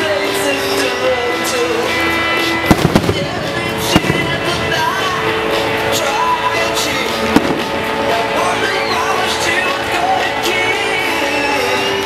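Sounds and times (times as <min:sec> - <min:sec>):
music playing: 0:00.0 - 0:12.0
firework bang: 0:02.7 - 0:05.4, 0:07.3 - 0:08.0.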